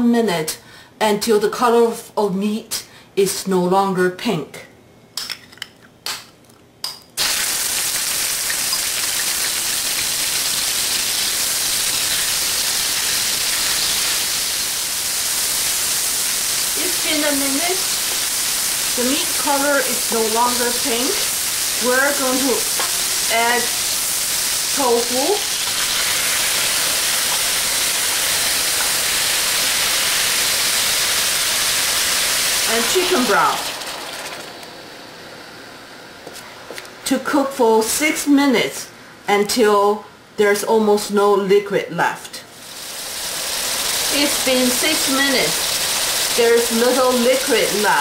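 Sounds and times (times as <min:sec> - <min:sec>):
meat sizzling in hot oil: 0:07.2 - 0:34.9, 0:42.5 - 0:48.0.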